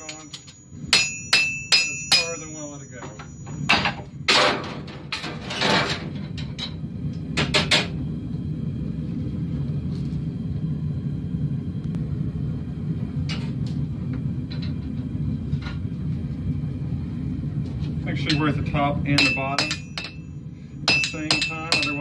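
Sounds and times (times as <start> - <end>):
forge roaring: 4.3 - 19.2.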